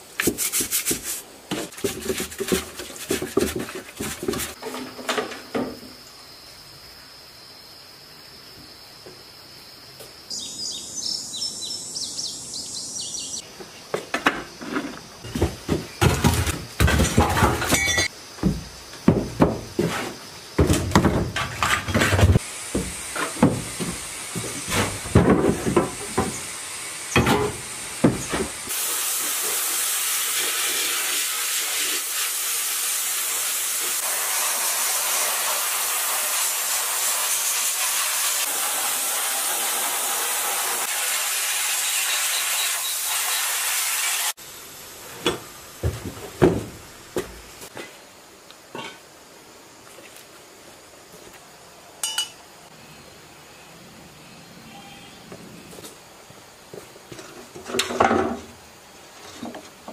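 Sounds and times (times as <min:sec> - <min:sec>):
sandblasting nozzle hiss: 0:25.9 - 0:44.4.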